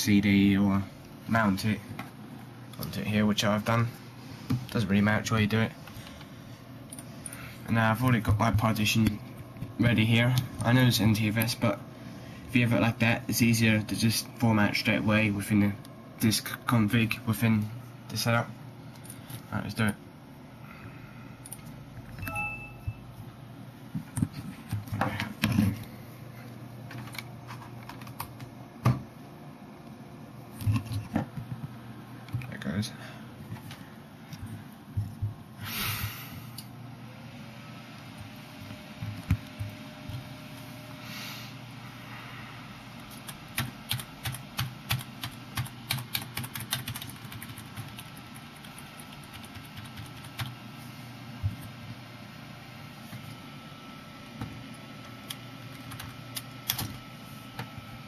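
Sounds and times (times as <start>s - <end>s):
brief high tone: 22.2s - 23.0s.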